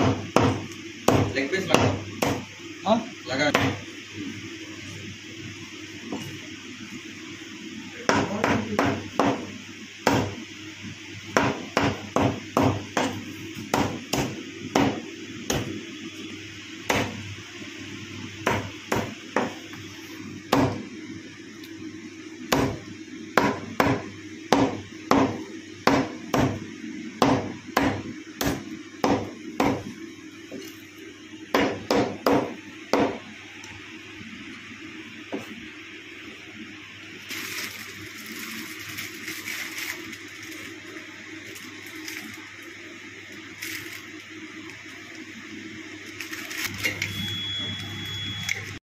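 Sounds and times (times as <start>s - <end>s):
cleaver chopping on wooden block: 27.2s - 29.8s.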